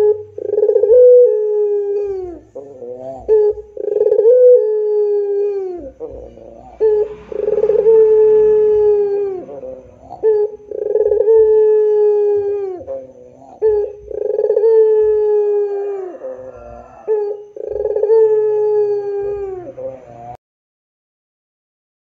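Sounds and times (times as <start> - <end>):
dove cooing: 0.0 - 20.4.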